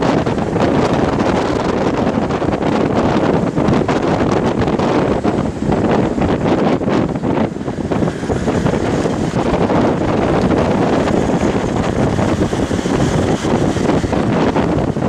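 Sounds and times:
vehicle driving rumble: 0:00.0 - 0:15.0
wind buffeting microphone: 0:00.0 - 0:15.0.

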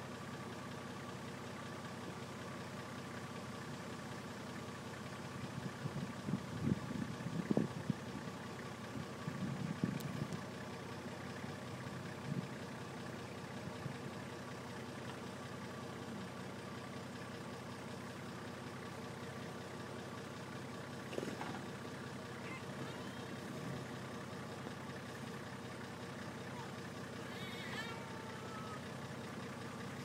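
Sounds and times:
truck engine running slowly: 0:00.0 - 0:30.0.

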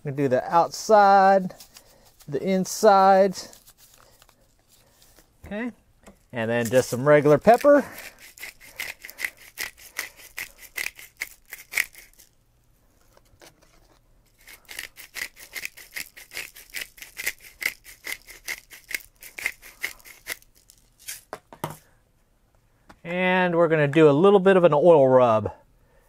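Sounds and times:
pepper grinder clicking: 0:07.3 - 0:12.3, 0:14.4 - 0:20.5.

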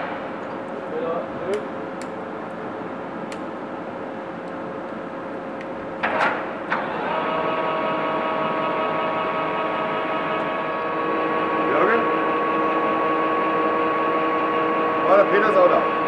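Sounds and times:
machine drive humming: 0:00.0 - 0:16.0
gearing whine: 0:03.8 - 0:16.0.

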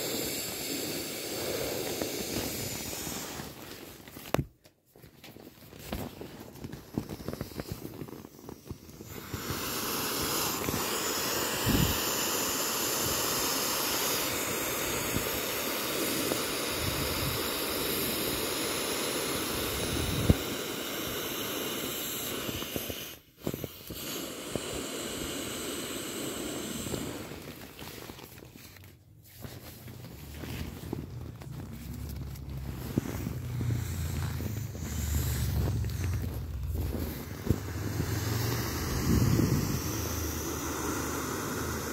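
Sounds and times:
air hissing from valve: 0:00.0 - 0:03.9, 0:06.9 - 0:28.3, 0:31.7 - 0:41.9
vinyl rubbing and clicking: 0:03.2 - 0:09.2, 0:27.2 - 0:40.4.

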